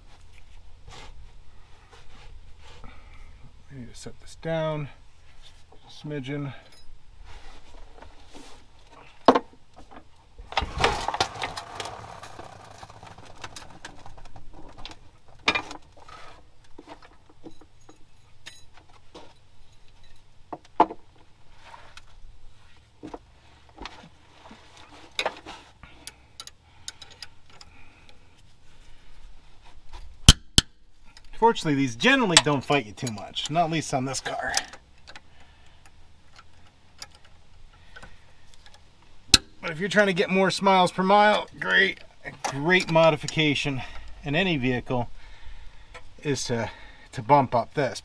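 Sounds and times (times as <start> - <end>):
tools and metal parts clinking: 6.5 - 7.0, 16.8 - 20.4, 36.2 - 39.6.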